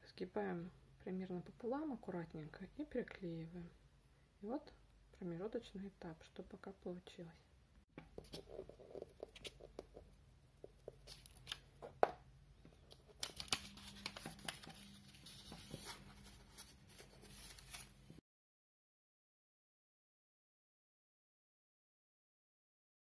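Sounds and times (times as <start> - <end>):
paper rustling and crinkling: 10.9 - 11.7, 12.8 - 18.2.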